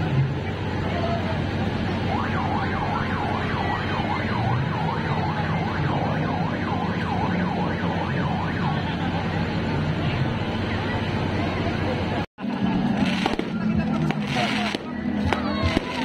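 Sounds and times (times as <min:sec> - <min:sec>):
electronic siren wailing: 0:01.9 - 0:10.1.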